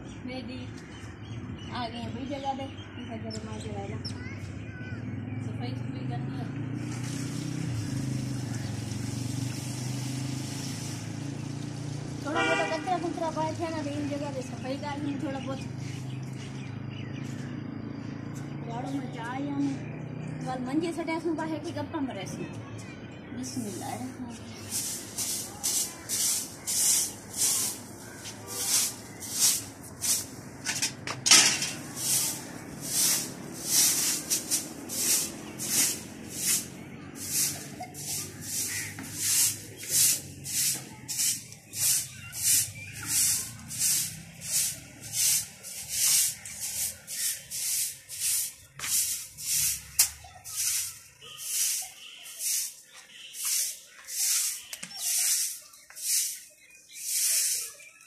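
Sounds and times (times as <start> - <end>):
broom sweeping stone floor: 6.8 - 11.3, 23.4 - 58.0.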